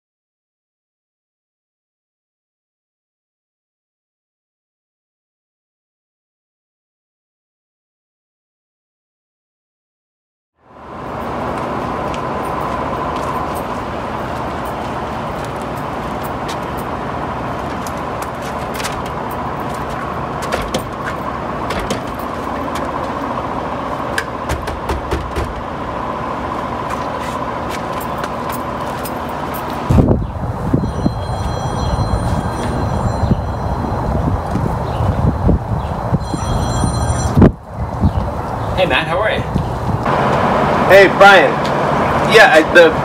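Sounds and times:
building machinery hum: 0:10.6 - 0:38.9, 0:39.5 - 0:43.0
traffic hum: 0:10.6 - 0:43.0
door handle clicks and knocks: 0:20.4 - 0:21.0, 0:21.7 - 0:22.1, 0:24.5 - 0:25.6.

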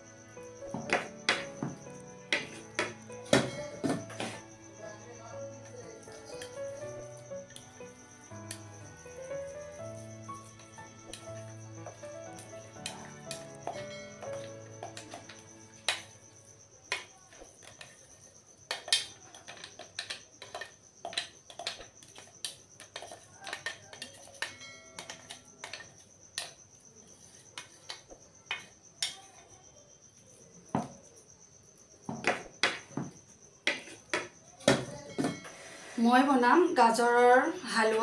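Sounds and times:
metal spoon scraping steel jar: 0:22.8 - 0:26.0.

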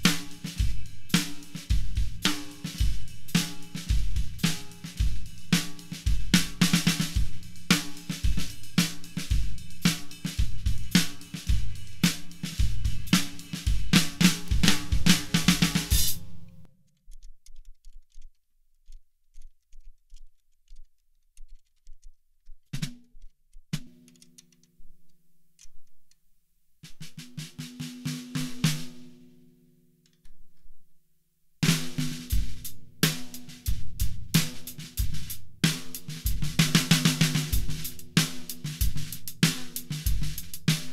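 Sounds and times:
snare drum hits: 0:00.0 - 0:16.5, 0:31.6 - 0:40.9
drum kit groove: 0:00.0 - 0:16.7, 0:22.5 - 0:24.5, 0:26.8 - 0:29.2, 0:31.6 - 0:40.9.

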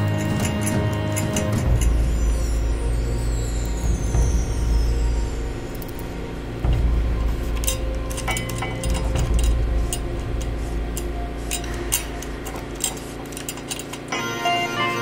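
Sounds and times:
background music with sustained tones: 0:00.0 - 0:15.0
light clinks and ticks: 0:07.5 - 0:14.2.

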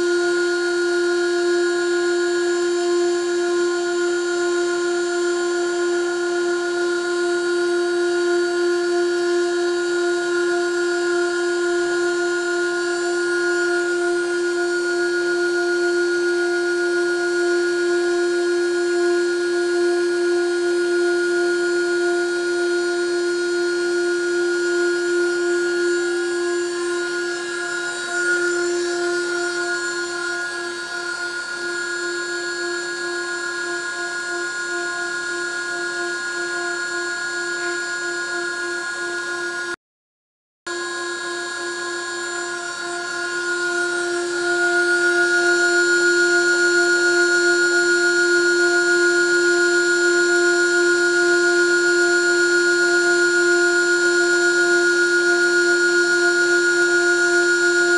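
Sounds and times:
milling spindle whining: 0:23.6 - 0:39.7, 0:40.8 - 0:50.4, 0:55.3 - 0:57.9.

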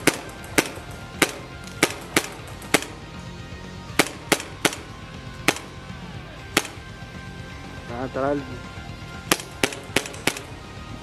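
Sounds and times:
airsoft pistol pops: 0:09.3 - 0:10.5.

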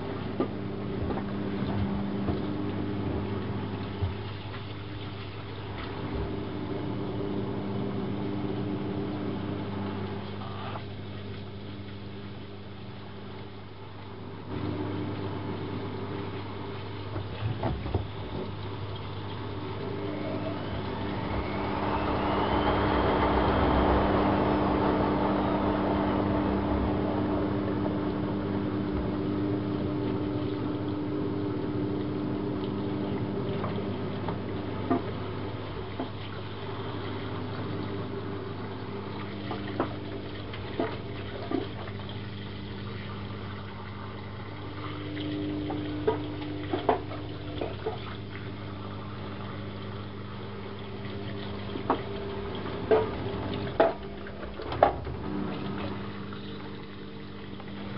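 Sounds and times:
steady low hum: 0:00.0 - 0:57.9
water rushing into washing machine: 0:00.0 - 0:57.9.

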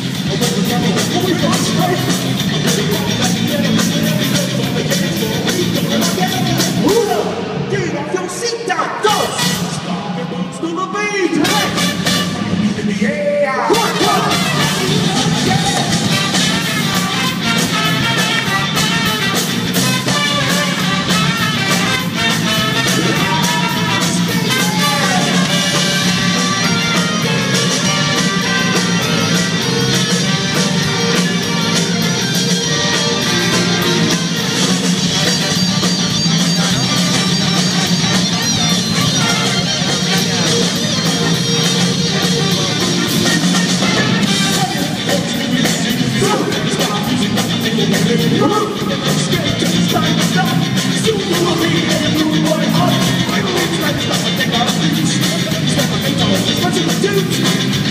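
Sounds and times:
live rock band with horns: 0:00.0 - 0:57.9
person singing: 0:22.6 - 0:32.0, 0:39.1 - 0:57.9.

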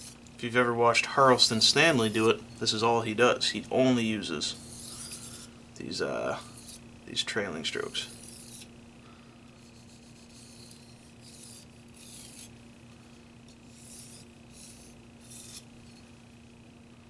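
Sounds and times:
knife scraping on whetstone: 0:01.4 - 0:02.4, 0:04.5 - 0:05.5, 0:06.4 - 0:06.8, 0:08.0 - 0:08.7, 0:09.6 - 0:12.5, 0:13.5 - 0:16.0.

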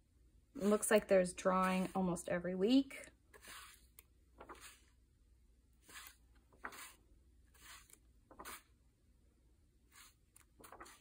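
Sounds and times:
paper pages turning: 0:03.3 - 0:05.0, 0:05.8 - 0:08.8, 0:09.9 - 0:11.0.

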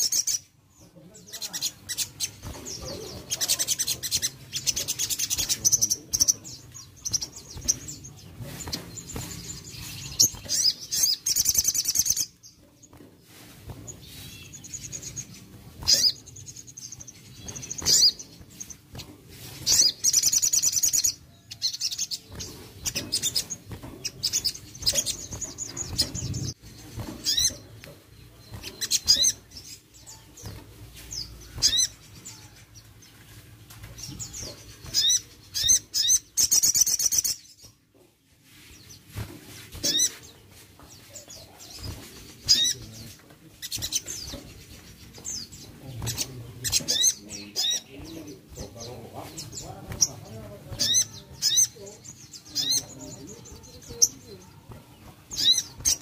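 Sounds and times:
songbird chirping: 0:00.0 - 0:56.0
wings fluttering: 0:01.3 - 0:37.8, 0:38.4 - 0:56.0
bird trilling: 0:14.0 - 0:18.8, 0:19.7 - 0:27.7, 0:28.5 - 0:32.5, 0:34.2 - 0:37.5, 0:39.8 - 0:40.3, 0:41.8 - 0:43.0, 0:43.6 - 0:56.0.

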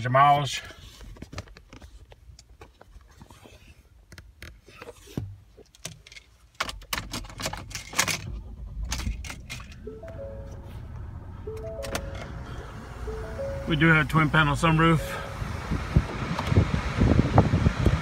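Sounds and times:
low rumble: 0:08.3 - 0:14.4.

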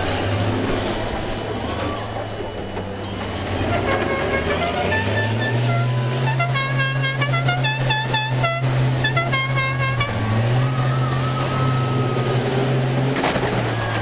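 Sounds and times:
bus engines running: 0:00.0 - 0:14.0
horn tooting: 0:03.5 - 0:12.7.

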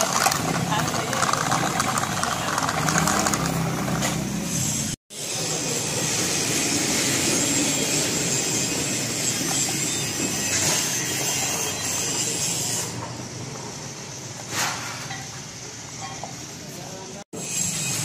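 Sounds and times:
toy tractor rattling rumble: 0:00.0 - 0:04.3.

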